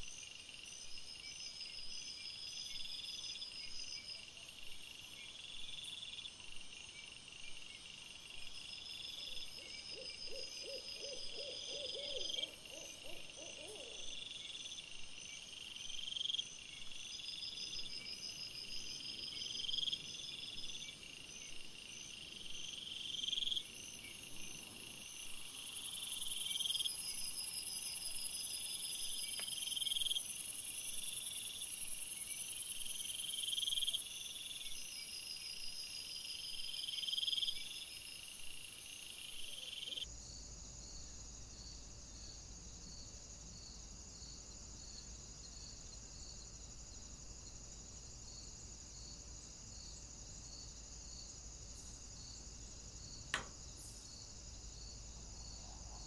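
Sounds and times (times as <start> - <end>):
crickets chirping: 0.0 - 56.0
low quavering hoot: 10.0 - 14.1.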